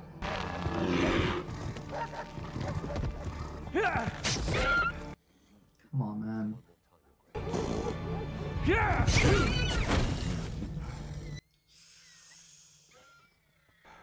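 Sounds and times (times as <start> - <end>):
drama soundtrack music: 7.3 - 11.4.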